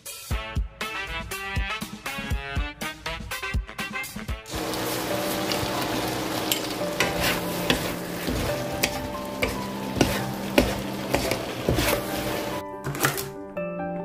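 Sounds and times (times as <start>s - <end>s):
food sizzling in a pan: 4.5s - 12.6s
spatula scraping a pan: 4.8s - 12.6s.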